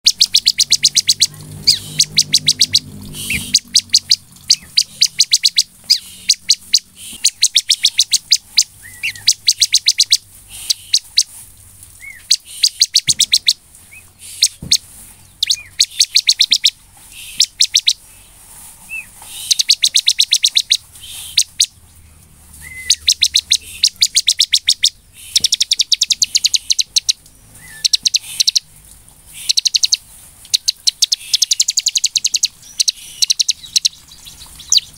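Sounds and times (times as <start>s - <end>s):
bird song with rapid high chips: 0.0s - 11.3s, 12.0s - 18.3s, 18.9s - 21.8s, 22.6s - 28.7s, 29.3s - 34.9s
slurred bird notes: 0.0s - 11.3s, 22.6s - 28.7s, 29.3s - 34.9s.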